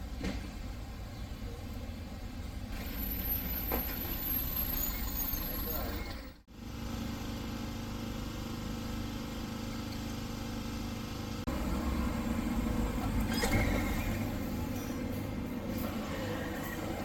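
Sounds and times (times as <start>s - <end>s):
street ambience: 0.0s - 17.0s
vehicle engine running: 6.5s - 17.0s.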